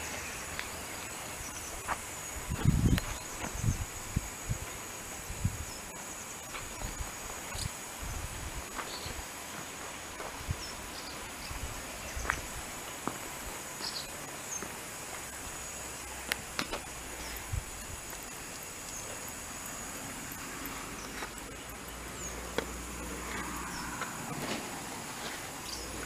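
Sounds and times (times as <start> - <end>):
high-pitched insect drone: 13.6 - 26.0.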